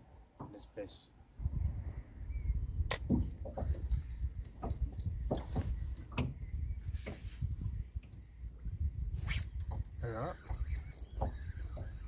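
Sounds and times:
wind rumble on microphone: 0:01.3 - 0:12.0
fishing reel clicking and squeaking: 0:10.2 - 0:12.0.

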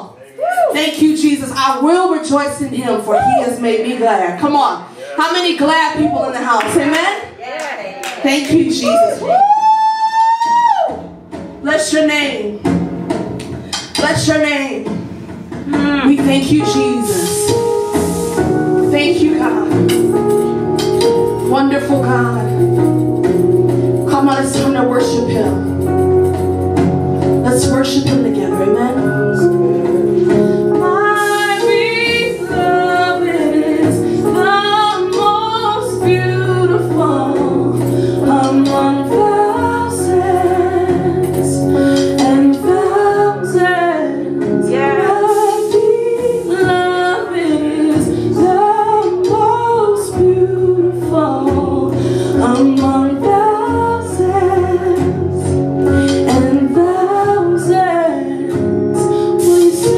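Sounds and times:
woman singing into a microphone: 0:24.0 - 0:26.0, 0:27.4 - 0:59.9.

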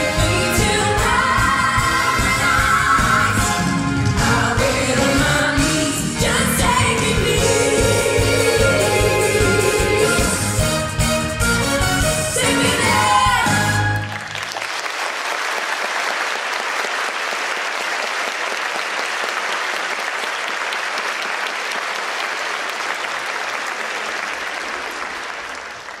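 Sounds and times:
audience applauding: 0:13.8 - 0:26.0.

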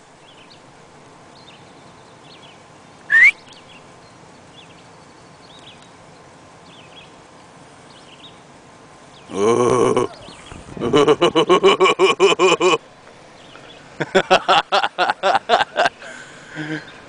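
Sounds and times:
outdoor background hiss: 0:00.0 - 0:17.0
faint bird chirps: 0:01.3 - 0:08.4.

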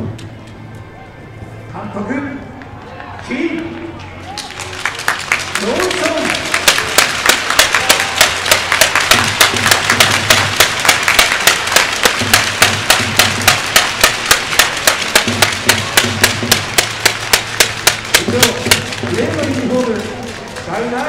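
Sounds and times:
crowd clapping in unison: 0:02.9 - 0:21.0.

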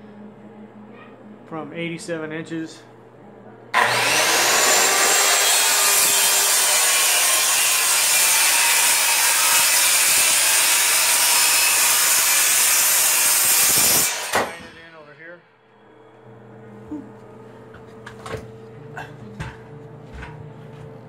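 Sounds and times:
electric saw cutting wood: 0:03.8 - 0:14.8.

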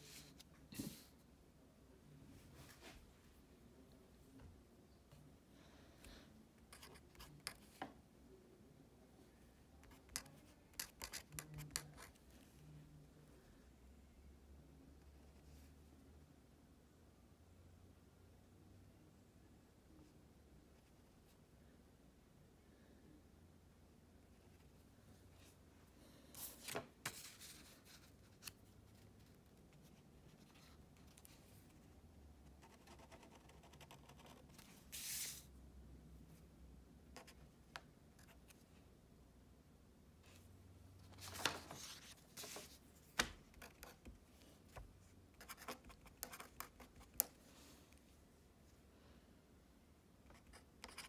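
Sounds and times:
paper rustling: 0:41.0 - 0:43.8.

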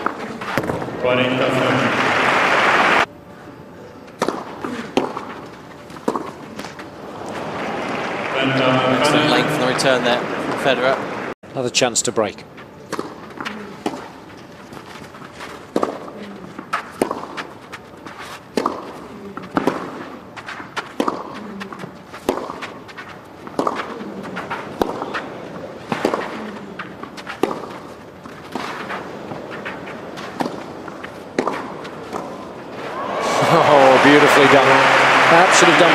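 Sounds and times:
footsteps on clay court: 0:00.0 - 0:01.0, 0:04.0 - 0:08.2, 0:12.4 - 0:32.8
tennis ball bounces: 0:04.1 - 0:08.3, 0:12.8 - 0:32.7
tennis racket hits: 0:12.9 - 0:32.6.

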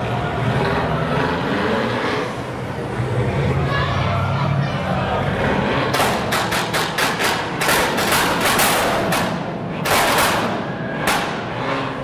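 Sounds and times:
exhaust pops and bangs: 0:05.9 - 0:11.4.

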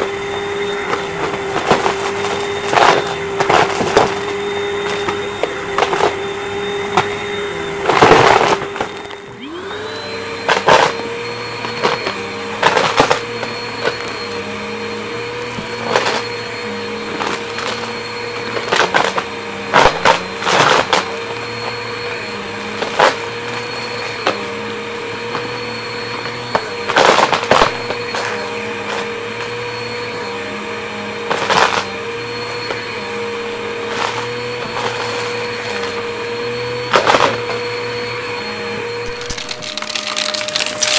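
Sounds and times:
vacuum cleaner motor whine: 0:00.0 - 0:40.9
debris rattling up vacuum nozzle: 0:39.0 - 0:40.9.

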